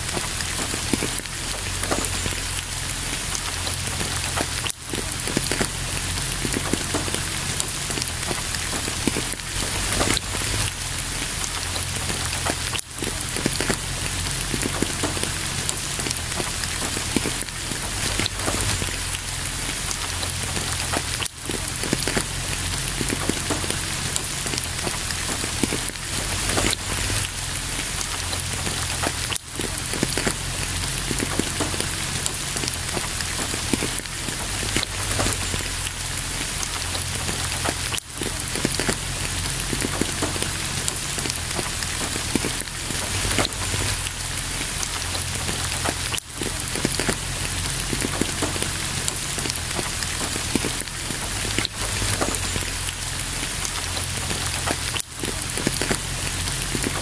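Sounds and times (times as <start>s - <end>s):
steady rain: 0.0s - 57.0s.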